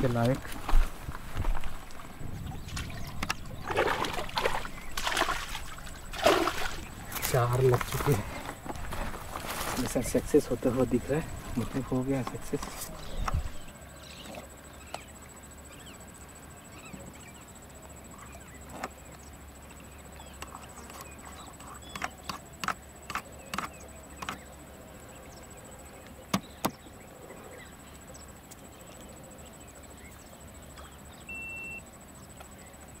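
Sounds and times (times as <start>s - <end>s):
steady high-pitched whine: 0.0s - 33.0s
faint chirps: 1.9s - 33.0s
brief beep: 31.3s - 31.8s.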